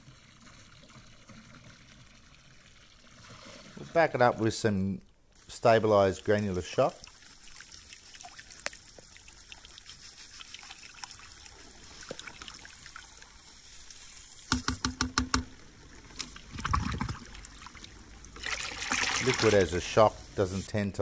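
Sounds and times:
pool water trickling: 0:00.0 - 0:14.5, 0:15.4 - 0:20.9
water splashing: 0:05.5 - 0:13.5, 0:15.9 - 0:19.9
sharp taps: 0:14.5 - 0:15.5.

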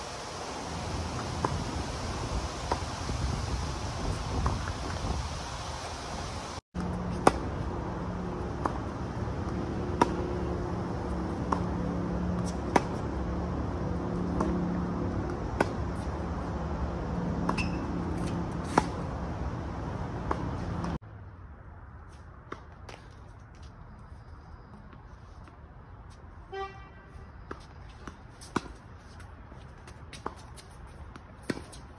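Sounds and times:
tennis ball hits: 0:06.8 - 0:07.6, 0:08.4 - 0:10.6, 0:12.4 - 0:13.1, 0:14.3 - 0:16.1, 0:17.4 - 0:19.1.

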